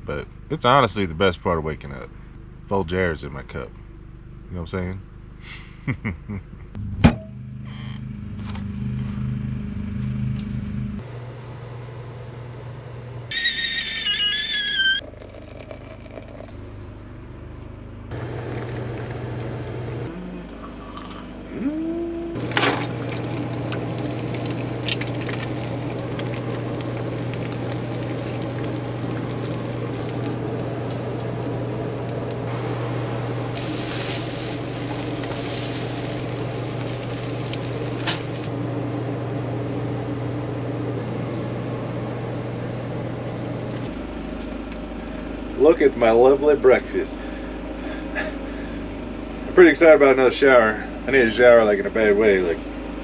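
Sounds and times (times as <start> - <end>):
coffee pouring into ceramic mug: 15.0 - 16.5, 20.8 - 21.2
person sipping: 15.0 - 16.5, 20.1 - 32.4
steady low hum: 15.0 - 53.0
short vocal sound: 20.1 - 20.8, 21.5 - 22.4
meat sizzling in frying pan: 33.6 - 38.5.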